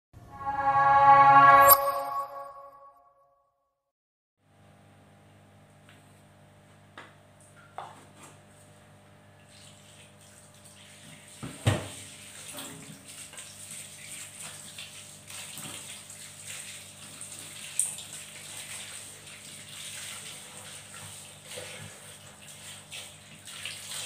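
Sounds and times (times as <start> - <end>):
short sharp sound: 0.2 - 3.1
fruit rinsed by hand: 9.4 - 24.0
bowl knocking in sink: 11.4 - 12.0
tap running into steel sink: 11.4 - 12.0.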